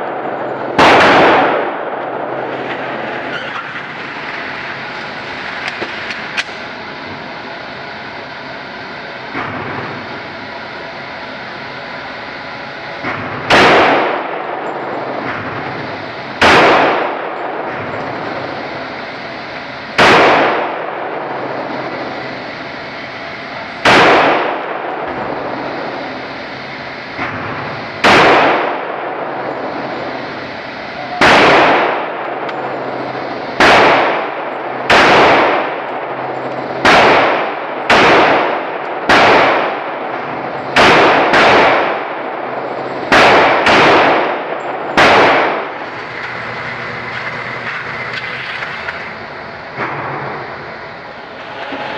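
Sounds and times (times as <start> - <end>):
pistol gunshots indoors: 0.0 - 4.2, 13.0 - 22.5, 23.8 - 26.4, 27.1 - 49.0.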